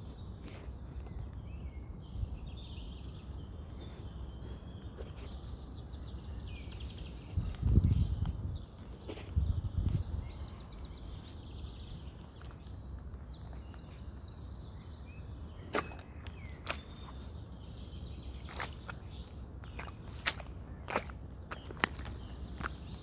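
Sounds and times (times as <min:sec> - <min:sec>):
birds chirping faintly: 0:00.0 - 0:23.0
shoes stepping in muddy puddle: 0:15.6 - 0:23.0
wet shoes smacking and popping: 0:15.7 - 0:17.3, 0:18.4 - 0:23.0.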